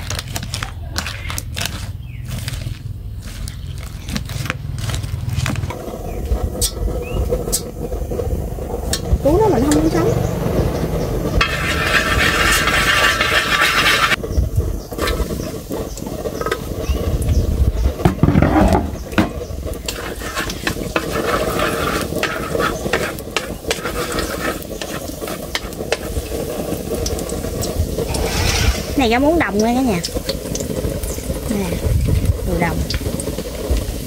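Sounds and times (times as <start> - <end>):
chopsticks tapping and scraping metal: 0.0 - 5.7, 11.4 - 14.2, 19.8 - 26.3
garlic sizzling in hot oil: 0.0 - 18.3, 18.9 - 34.0.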